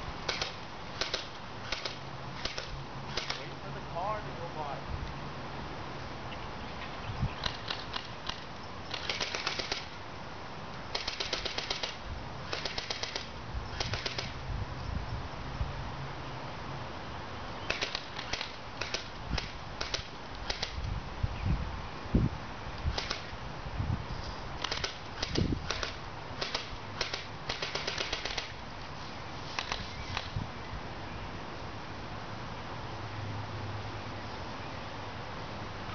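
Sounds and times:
airsoft gun shots: 0.3 - 3.5, 7.4 - 10.0, 10.9 - 14.4, 17.7 - 20.8, 22.9 - 23.4, 24.6 - 28.6.

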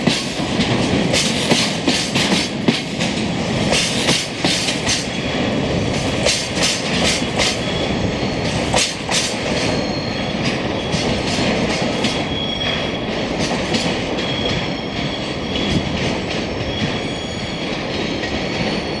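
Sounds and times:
train wheels clicking over rail joints: 0.0 - 19.0
thin wheel squeals: 9.7 - 10.9, 16.6 - 17.7.

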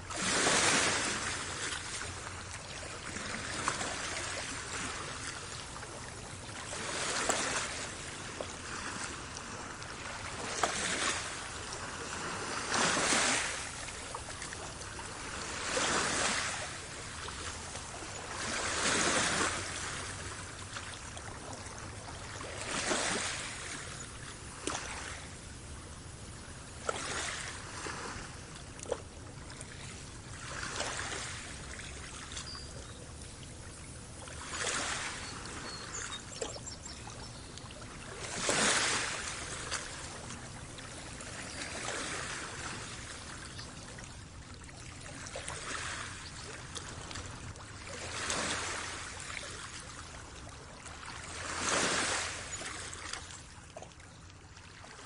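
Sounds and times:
waves on pebbly shore: 0.0 - 53.6.

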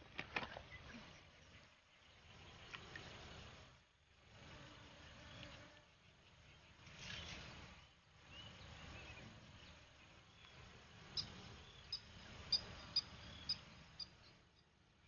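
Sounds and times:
faint outdoor ambience: 0.0 - 15.0
small bird chirping: 5.2 - 14.8.

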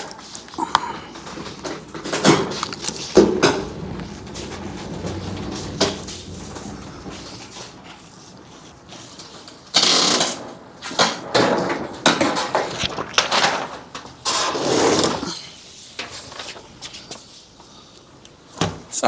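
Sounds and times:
heavy unit clunking: 0.0 - 14.5
hand truck rolling on concrete: 0.0 - 17.8.

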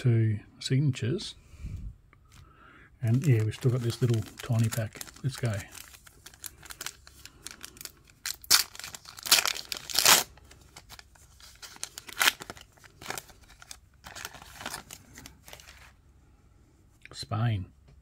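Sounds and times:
foil pack tearing and crinkling: 3.0 - 15.8.

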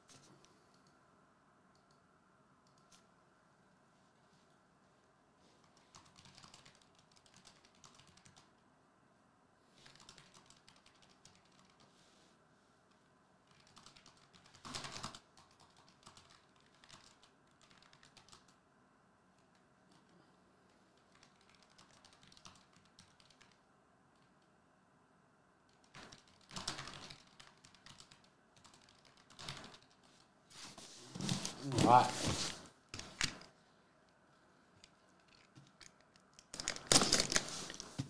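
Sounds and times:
computer keyboard typing: 5.6 - 8.6, 9.8 - 11.9, 13.5 - 18.6, 21.0 - 24.4, 25.7 - 30.1, 35.1 - 37.5.

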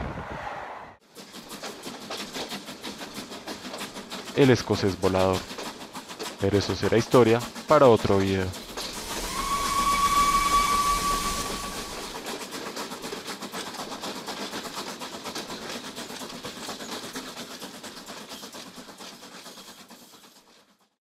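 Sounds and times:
train rattling at speed: 0.0 - 21.0
steam whistle: 8.7 - 12.2.

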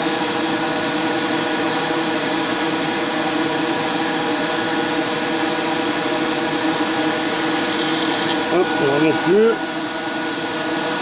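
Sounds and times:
airbrush hissing: 0.0 - 4.2, 5.2 - 8.4.

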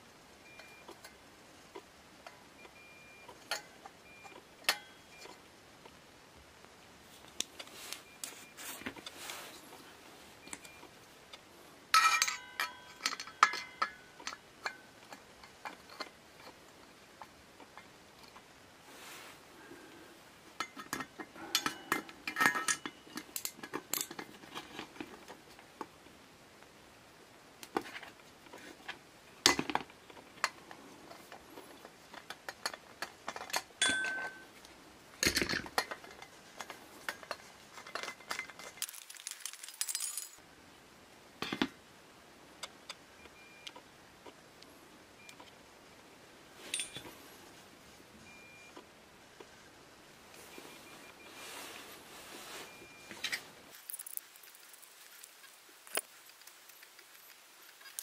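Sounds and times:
metal tools clinking on metal: 12.0 - 14.8, 20.6 - 24.3, 32.5 - 34.5, 35.2 - 40.4, 46.6 - 47.1.

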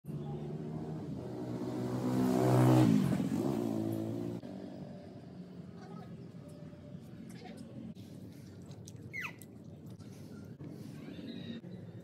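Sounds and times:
motor vehicle driving past: 0.2 - 5.6.

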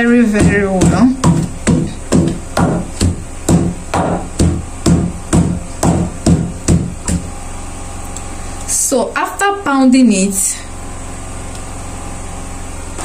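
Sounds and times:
wooden pestle pounding in mortar: 0.0 - 7.3.

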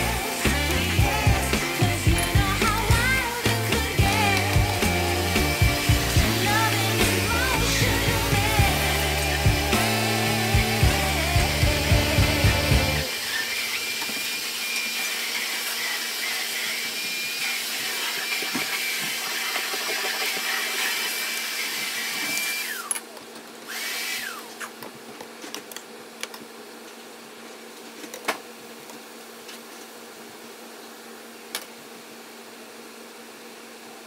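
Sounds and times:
steady high whine: 0.0 - 17.9
stir-fry sizzling in a pan: 0.0 - 22.7.

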